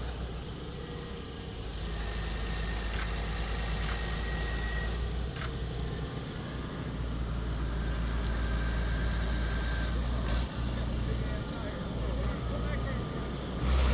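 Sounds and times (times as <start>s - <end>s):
tractor diesel engine rumbling: 0.0s - 13.9s.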